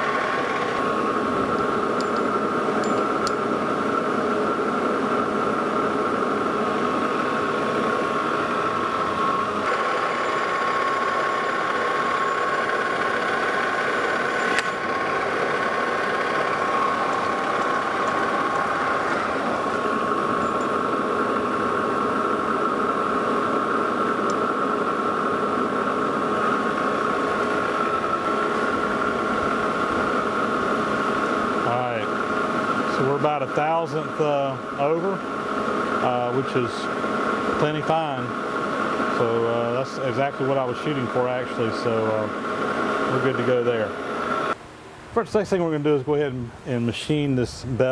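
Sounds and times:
metal lathe running: 0.0s - 44.6s
sharp click: 14.4s - 14.8s.

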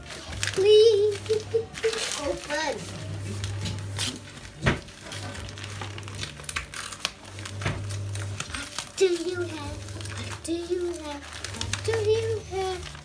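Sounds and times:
gift wrapping crinkling: 0.0s - 13.0s.

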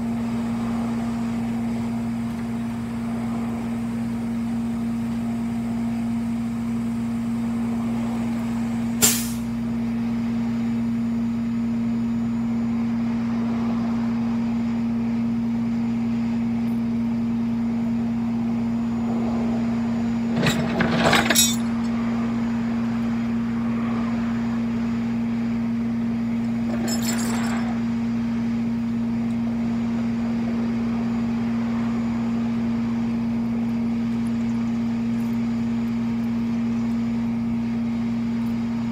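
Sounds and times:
truck engine humming: 0.0s - 38.9s
knocks and rattles: 20.3s - 21.7s, 26.7s - 27.7s.

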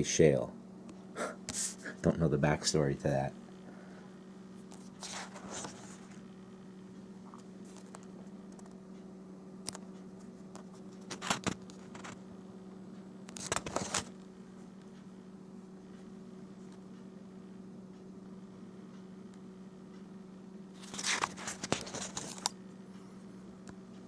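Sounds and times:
steady low hum: 0.0s - 24.0s
paper pages rustling: 4.8s - 6.2s, 11.0s - 12.2s, 13.4s - 14.1s, 20.8s - 22.6s.

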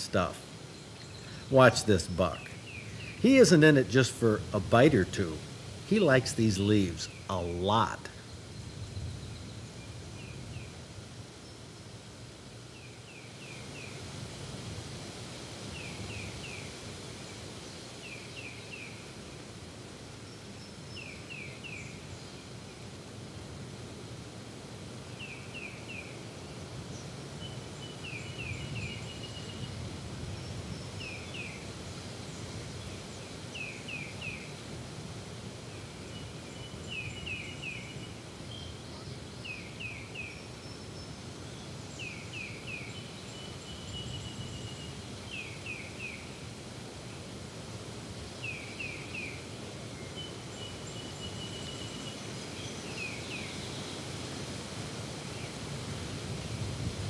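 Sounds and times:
songbird repeating falling notes: 0.0s - 8.2s
low background noise: 0.0s - 57.0s.

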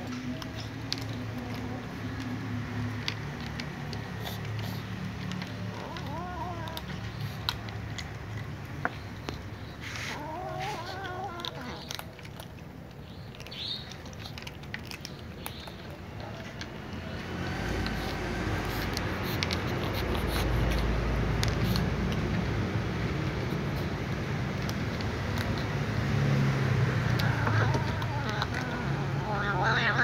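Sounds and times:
cats crunching dry kibble: 0.0s - 30.0s
chewing clicks: 0.0s - 30.0s
cat meowing: 5.7s - 7.3s, 9.8s - 12.1s, 27.1s - 30.0s.

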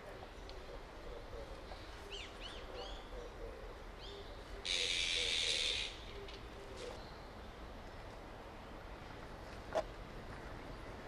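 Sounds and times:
magpies chirping: 0.4s - 7.0s.

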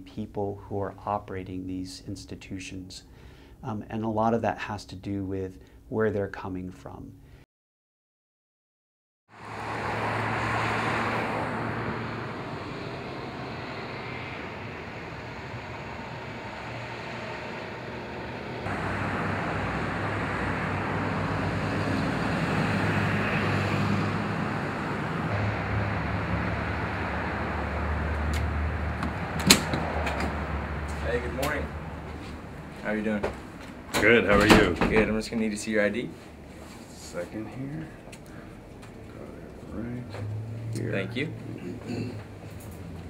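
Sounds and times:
car traffic passing: 9.3s - 43.0s.

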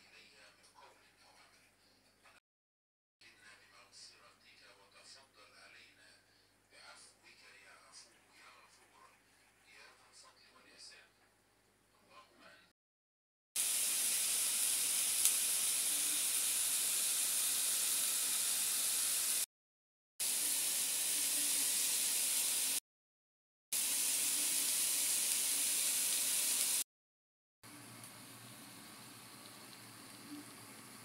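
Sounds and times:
food sizzling in a frying pan: 13.6s - 19.5s, 20.2s - 22.8s, 23.7s - 26.9s, 27.7s - 31.0s.

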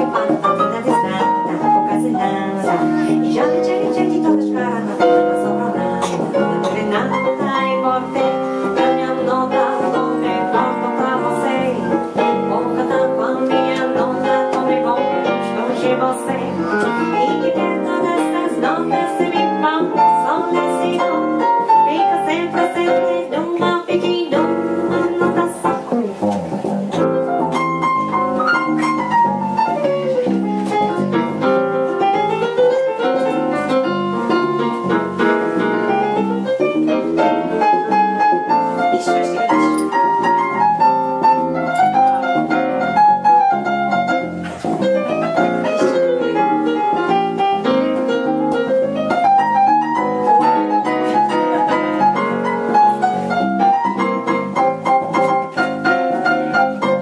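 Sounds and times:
piano solo with chords: 0.0s - 57.0s
electric bass: 24.9s - 31.4s.

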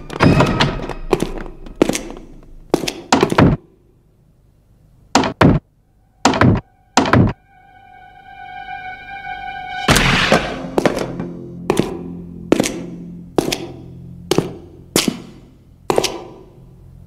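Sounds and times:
held musical note: 5.8s - 15.8s.

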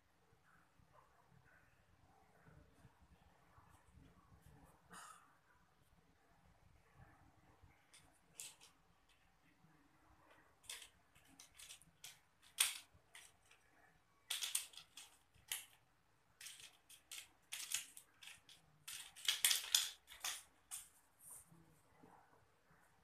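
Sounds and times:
toy car clattering on tiles: 7.9s - 9.2s, 10.3s - 15.8s, 16.4s - 20.9s.

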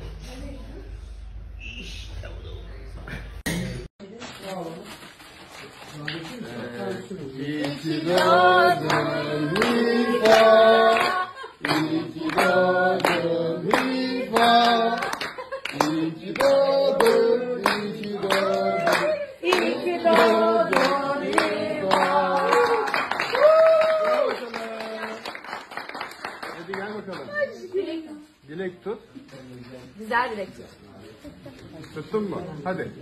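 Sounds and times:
group singing birthday song: 6.0s - 23.4s
rhythmic hand clapping: 7.5s - 27.3s.

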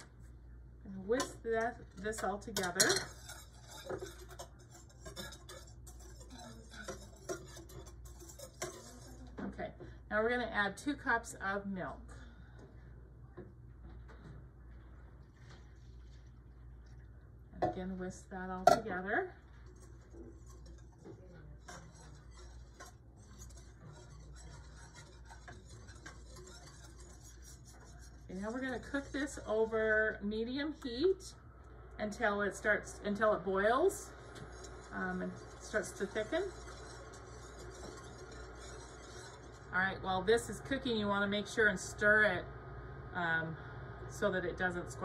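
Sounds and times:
whisk ticking against a saucepan: 1.2s - 9.4s, 19.4s - 30.9s, 33.2s - 39.8s.

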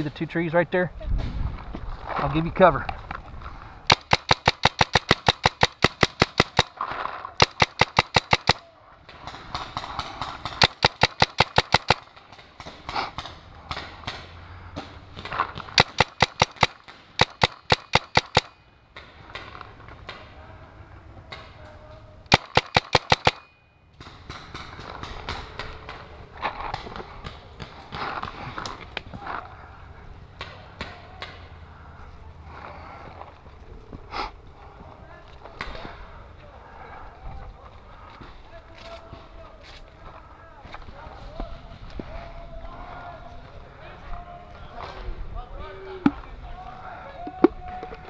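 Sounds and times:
paintball marker firing pops: 3.9s - 6.8s, 7.4s - 8.6s, 9.2s - 20.2s.

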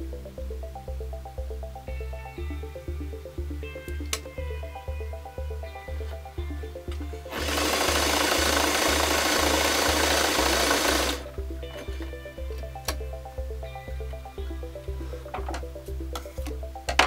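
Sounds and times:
background music with steady beat: 0.0s - 17.0s
sewing machine stitching: 7.3s - 11.2s.

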